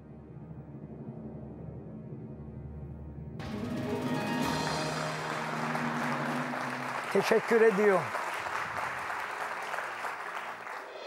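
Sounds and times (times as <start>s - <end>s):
game show music sting: 3.4s - 7.2s
audience applause: 4.0s - 11.0s.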